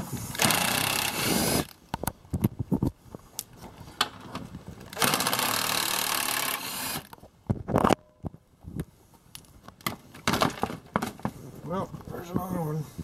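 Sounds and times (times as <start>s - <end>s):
cordless power driver spinning: 0.0s - 1.8s, 4.9s - 7.2s.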